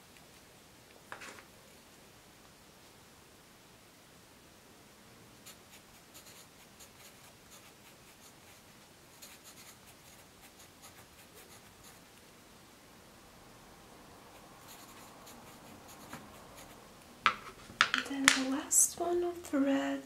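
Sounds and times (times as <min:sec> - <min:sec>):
pencil scratching on paper: 0:05.4 - 0:12.1, 0:14.6 - 0:16.8.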